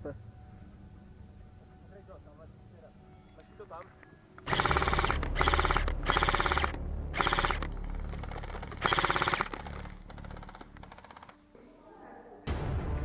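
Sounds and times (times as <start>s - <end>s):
airsoft rifle bursts: 4.4s - 11.4s.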